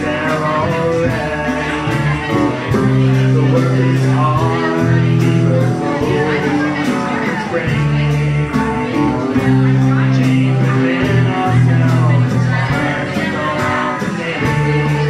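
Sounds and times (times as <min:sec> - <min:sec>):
acoustic guitar: 0:00.0 - 0:15.0
drum kit cymbal beat: 0:00.0 - 0:15.0.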